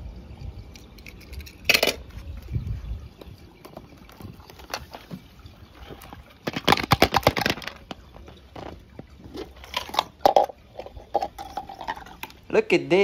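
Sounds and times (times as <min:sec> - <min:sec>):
hard objects clattering: 0:05.8 - 0:12.4.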